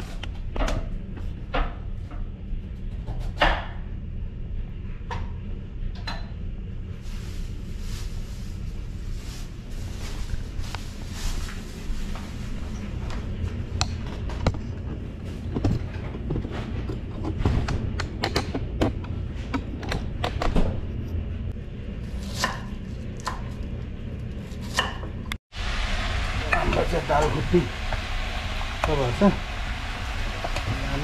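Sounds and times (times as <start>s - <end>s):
steady low hum: 0.0s - 31.0s
kitchen knocks and clicks: 15.5s - 20.8s.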